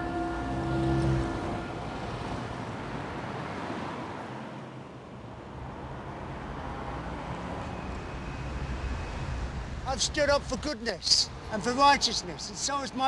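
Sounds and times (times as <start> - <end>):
road traffic hum: 0.0 - 13.0.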